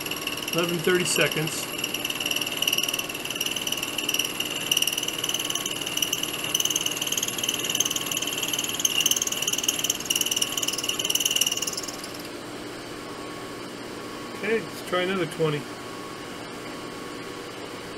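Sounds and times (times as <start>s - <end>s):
milling machine cutting metal: 0.0s - 12.3s.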